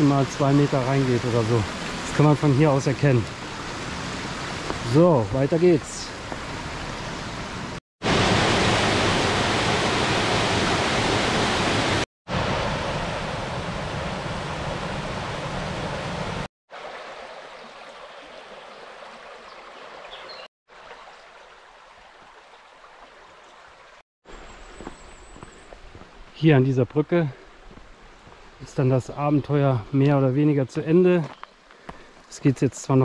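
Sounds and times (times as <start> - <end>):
stream water rushing over rocks: 0.0 - 12.9, 16.7 - 24.0.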